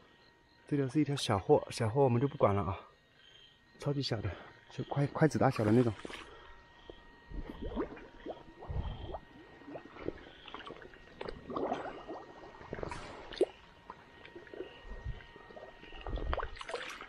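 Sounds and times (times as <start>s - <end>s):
footsteps wading through water: 5.5s - 17.0s.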